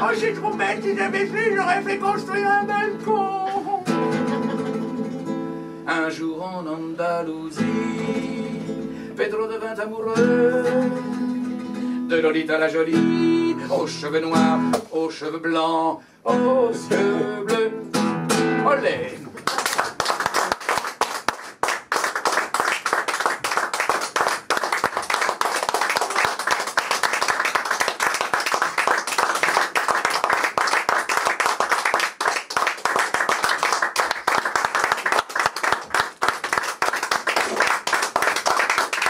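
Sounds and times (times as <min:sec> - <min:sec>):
audience applauding: 0:19.4 - 0:39.0.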